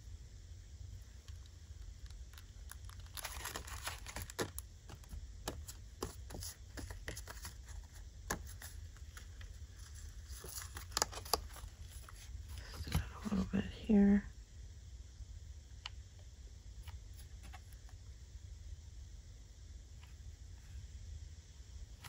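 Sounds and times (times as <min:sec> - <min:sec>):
paper rustling and crinkling: 0:02.0 - 0:13.4.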